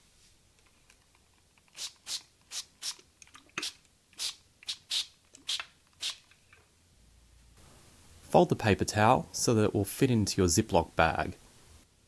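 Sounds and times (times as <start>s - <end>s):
spray bottle hissing sprays: 1.7s - 3.0s, 3.6s - 6.3s.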